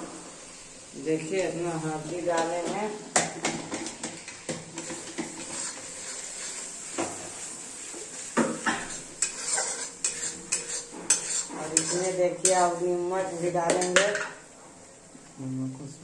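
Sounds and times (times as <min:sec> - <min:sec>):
faint sizzle of frying: 0:00.0 - 0:16.0
metal spatula scraping pan: 0:03.5 - 0:14.4
spatula clinking against pan: 0:09.2 - 0:12.6.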